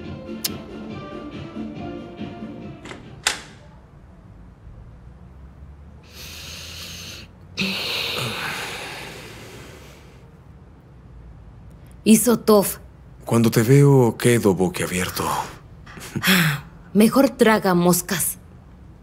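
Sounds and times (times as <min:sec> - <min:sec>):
person breathing heavily: 0:06.0 - 0:10.4.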